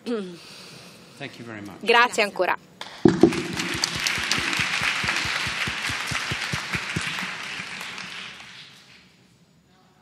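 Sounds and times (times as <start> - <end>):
close sharp hand claps: 2.8 - 9.0
audience applauding: 3.2 - 9.0.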